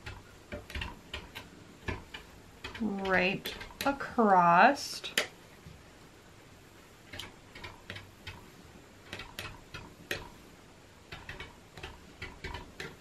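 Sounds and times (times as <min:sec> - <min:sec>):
craft tools clicking and tapping: 0:00.0 - 0:04.1, 0:07.1 - 0:10.4, 0:11.1 - 0:13.0.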